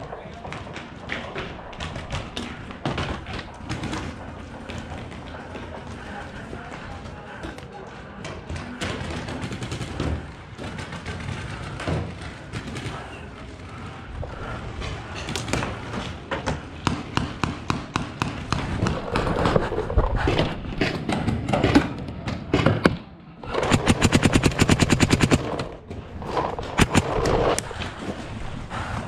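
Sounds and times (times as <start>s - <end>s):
paintball markers firing: 23.4s - 27.8s.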